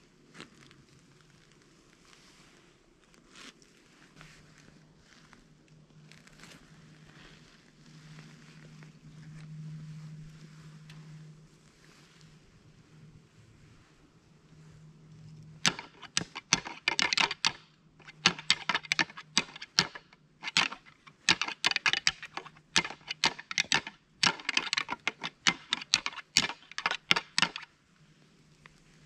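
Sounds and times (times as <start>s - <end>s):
deer antlers clashing: 15.6s - 27.7s.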